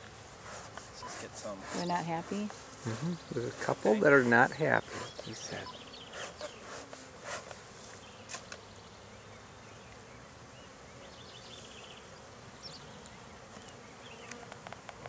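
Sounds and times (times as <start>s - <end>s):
honey bees buzzing: 0.0s - 15.0s.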